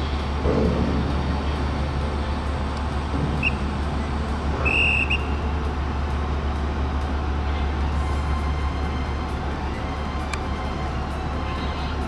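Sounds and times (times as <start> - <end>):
ferry engines droning: 0.0 - 12.0
short high whistle tones: 4.6 - 5.4.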